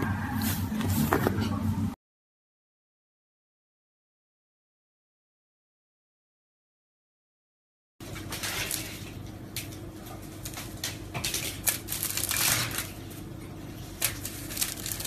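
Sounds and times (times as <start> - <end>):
aluminium foil crinkling: 8.1 - 15.0.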